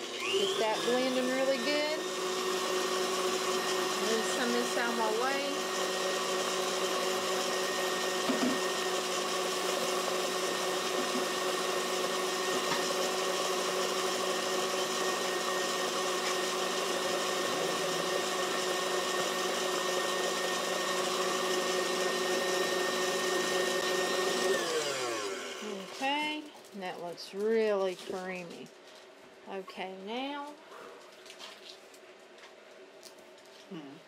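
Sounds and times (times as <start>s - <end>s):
stand mixer motor whine: 0.0s - 26.2s.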